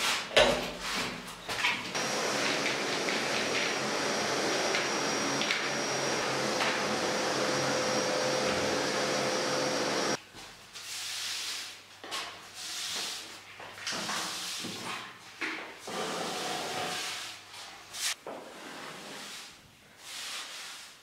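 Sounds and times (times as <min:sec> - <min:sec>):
vacuum cleaner running: 0:01.9 - 0:10.2
brush swishing against a wall: 0:10.4 - 0:21.0.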